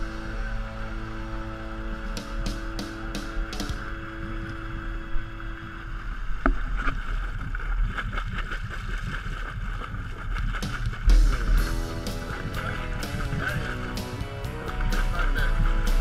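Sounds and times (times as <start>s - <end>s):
boat engine rumble: 0.0s - 16.0s
water rushing along hull: 0.0s - 16.0s
wind on microphone: 3.8s - 14.0s.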